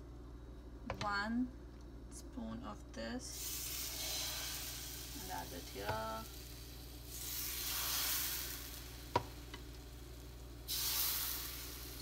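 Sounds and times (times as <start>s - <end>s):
batter sizzling on a griddle: 3.3s - 12.0s.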